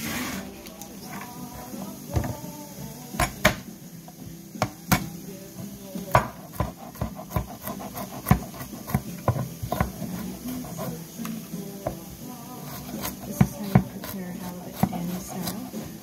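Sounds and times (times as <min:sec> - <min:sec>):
knife chopping on cutting board: 0:06.1 - 0:10.9, 0:12.7 - 0:16.0.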